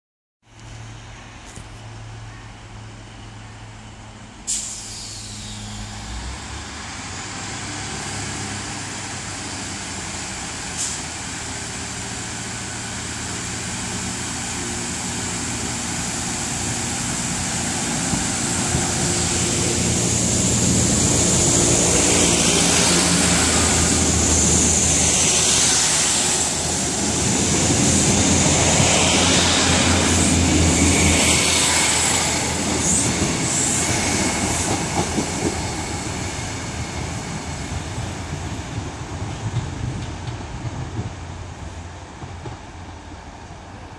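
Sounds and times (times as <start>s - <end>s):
rail and wheel noise: 0.4s - 43.9s
diesel train engine passing: 0.5s - 43.9s
high hiss: 4.4s - 7.3s, 9.6s - 36.8s.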